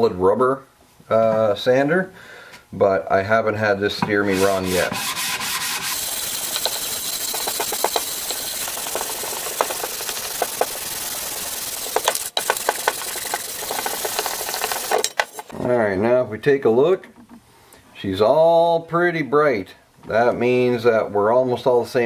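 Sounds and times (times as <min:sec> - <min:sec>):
sandpaper sanding metal: 0:04.1 - 0:15.5.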